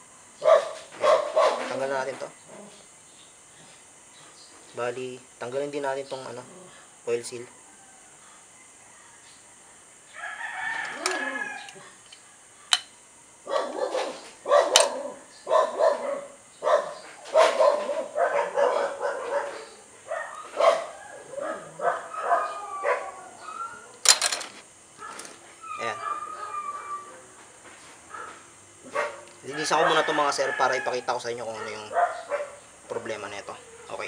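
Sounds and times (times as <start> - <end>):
rooster crowing: 7.3 - 12.6, 17.2 - 24.4, 25.0 - 27.6, 28.8 - 32.6
chickens calling: 10.1 - 12.8, 13.4 - 34.0.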